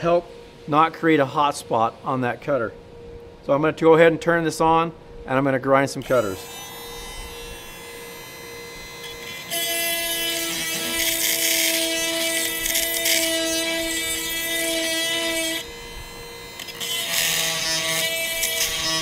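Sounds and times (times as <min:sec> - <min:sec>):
chain grinder grinding steel: 0:06.0 - 0:19.0
motor hum: 0:06.0 - 0:19.0.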